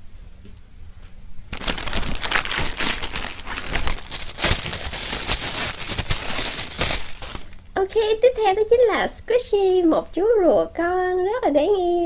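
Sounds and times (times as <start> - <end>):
plastic packaging crinkling: 1.5 - 7.7.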